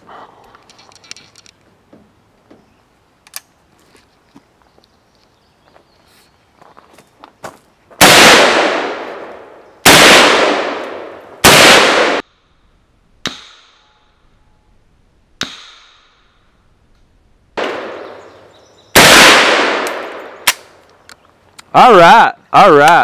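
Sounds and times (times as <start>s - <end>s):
rifle shots with echo: 8.0s - 12.2s, 17.6s - 20.7s.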